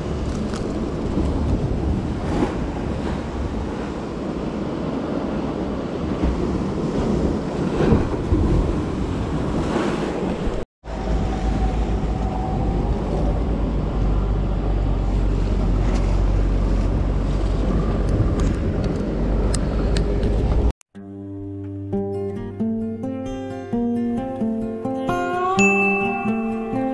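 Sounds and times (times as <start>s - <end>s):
sea surf on rocky shore: 0.0s - 20.7s
wind buffeting microphone: 0.0s - 20.7s.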